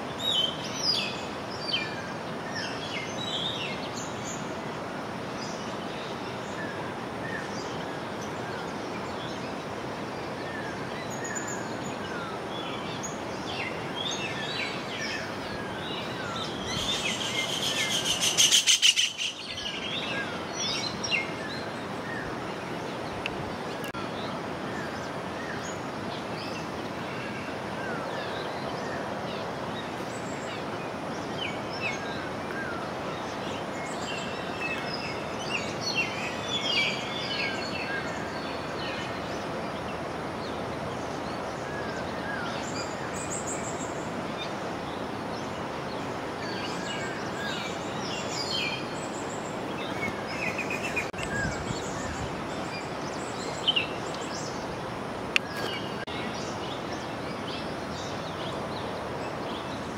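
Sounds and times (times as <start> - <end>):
bird chirps: 16.0 - 21.0.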